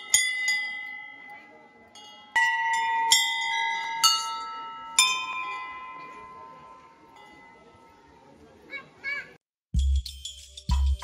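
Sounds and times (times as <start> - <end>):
brass bells ringing: 0.0 - 8.3, 9.8 - 11.0.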